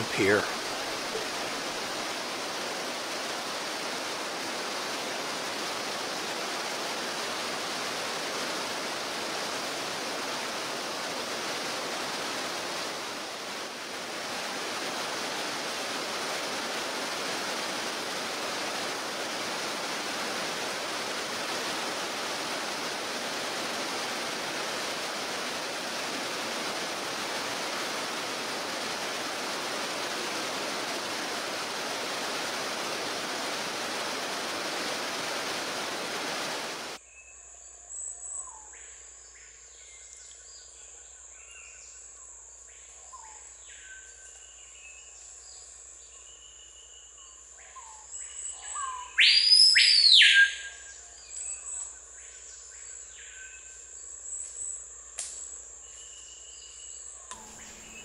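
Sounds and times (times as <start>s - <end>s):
stream rushing over rocks: 0.0s - 37.0s.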